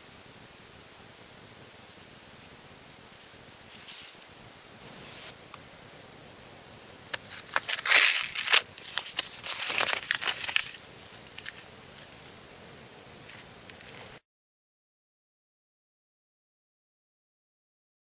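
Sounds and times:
paper label tearing and crumpling: 7.1 - 12.2, 13.2 - 14.2.

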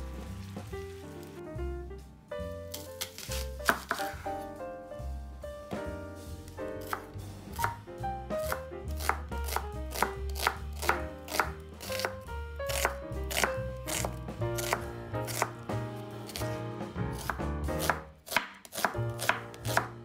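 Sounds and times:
background music: 0.0 - 20.0
knife chopping on cutting board: 2.7 - 4.4, 6.8 - 20.0.

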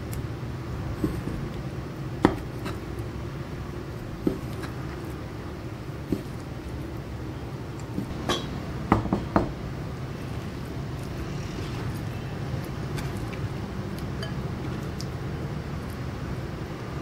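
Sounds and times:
steady low hum: 0.0 - 17.0
glass bowl clinking on wood: 14.2 - 14.4.

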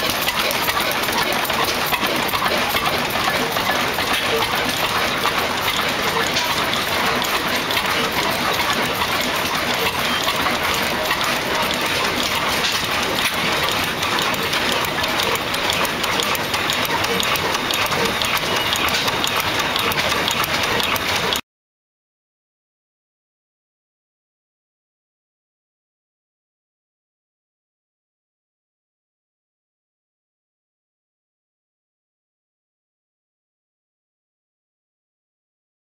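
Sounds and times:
stationary oil engines clattering: 0.0 - 21.4.

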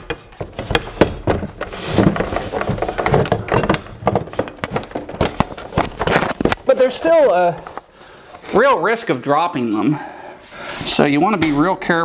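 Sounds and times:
metal clunks and knocks: 0.0 - 6.0.

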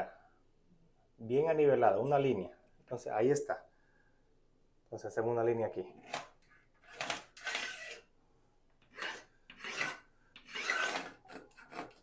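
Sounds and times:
pencil scratching on drywall: 8.9 - 12.0.

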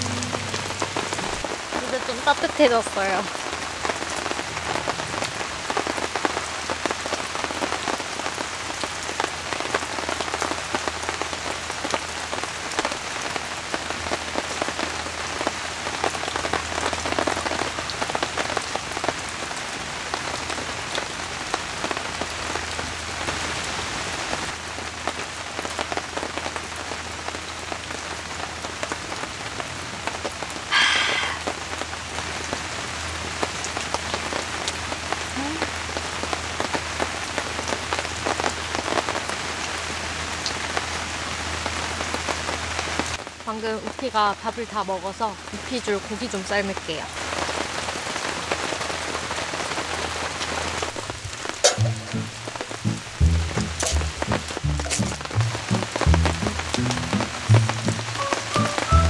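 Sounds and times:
brief loud sound: 0.0 - 1.4
rain falling on a tent: 0.0 - 59.0.

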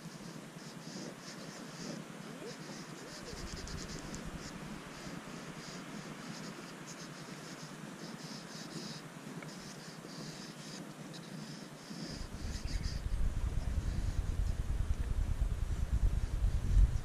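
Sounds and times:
pastel scratching on paper: 0.2 - 14.4
low rumble: 12.9 - 17.0.

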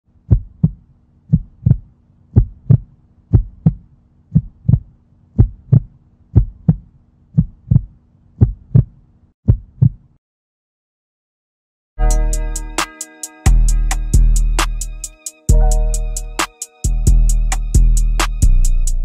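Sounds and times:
heartbeat thumps: 0.3 - 8.9.

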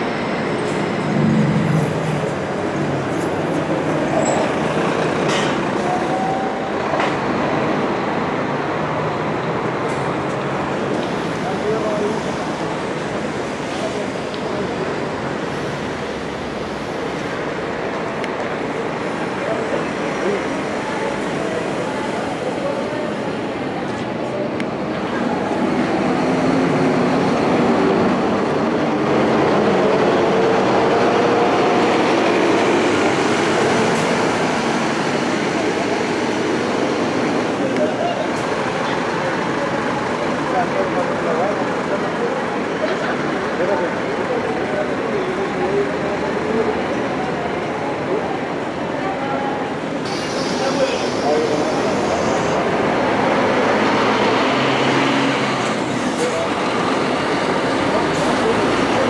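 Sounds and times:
diesel bus engines rumbling: 0.0 - 59.0
air brake hisses: 50.0 - 52.6.

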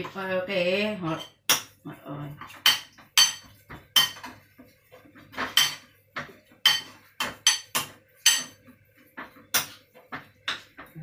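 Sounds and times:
spoon clinking against bowl: 2.6 - 4.3, 6.6 - 8.6.

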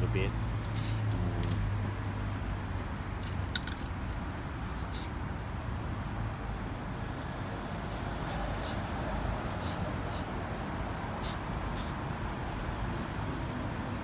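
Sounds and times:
spray paint can hissing: 0.5 - 1.6, 4.8 - 5.2, 7.9 - 8.8, 9.6 - 10.3, 11.2 - 12.0.

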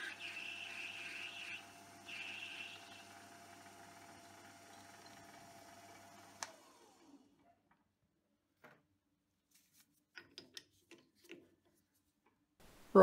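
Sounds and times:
lathe motor humming: 0.0 - 7.3.

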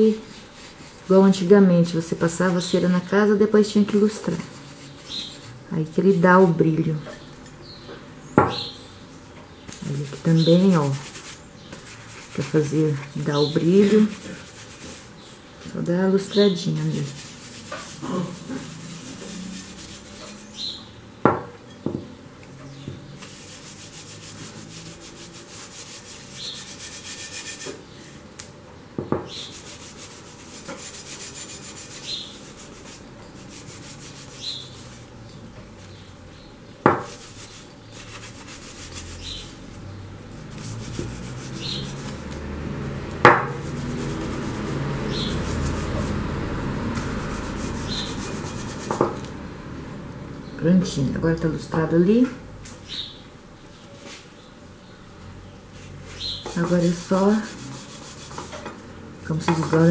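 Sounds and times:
paper towel rubbing on glass: 3.7 - 5.6, 9.8 - 15.4, 16.2 - 20.8, 23.2 - 27.7, 29.3 - 35.1, 37.1 - 39.7, 40.3 - 42.5, 43.5 - 49.0, 56.2 - 58.6
sharp knocks: 43.2 - 43.6.

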